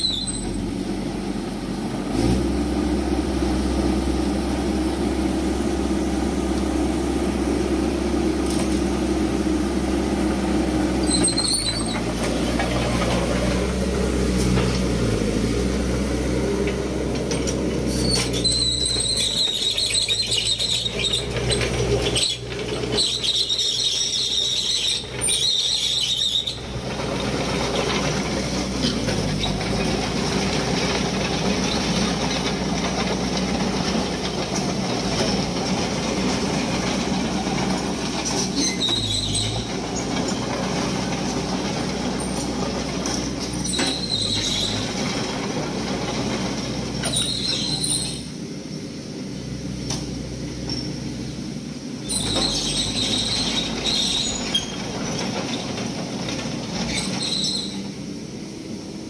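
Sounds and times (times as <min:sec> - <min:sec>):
brief high squeals: 0:00.0 - 0:00.6, 0:11.0 - 0:12.0, 0:56.9 - 0:57.8
diesel construction machinery running: 0:00.0 - 0:59.0.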